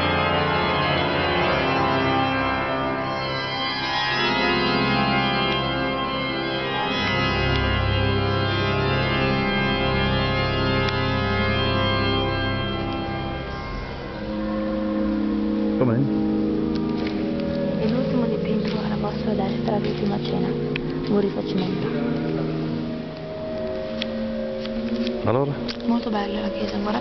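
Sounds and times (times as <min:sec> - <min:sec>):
pipe organ chords: 0:00.0 - 0:27.0.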